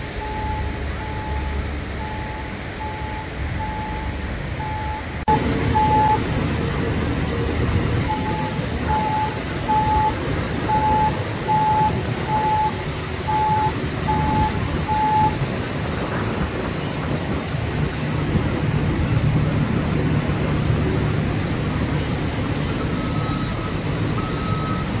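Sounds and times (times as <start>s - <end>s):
higher-pitched alarm beeping: 0.0s - 6.4s, 8.0s - 15.4s
backup alarm beeping: 0.0s - 15.5s, 22.5s - 25.0s
heavy machinery rumbling: 0.0s - 25.0s.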